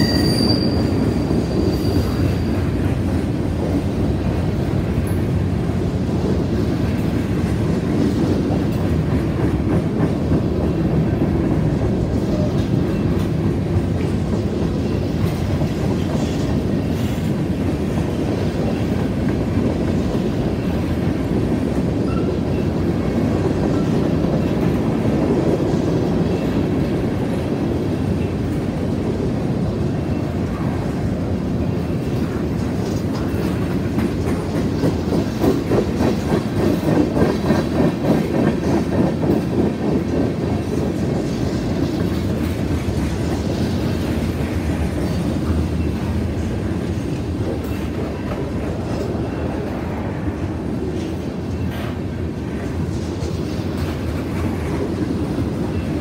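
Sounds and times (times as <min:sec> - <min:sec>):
train wheels rumbling on rails: 0:00.0 - 0:56.0
wheel clickety-clack: 0:32.0 - 0:49.2.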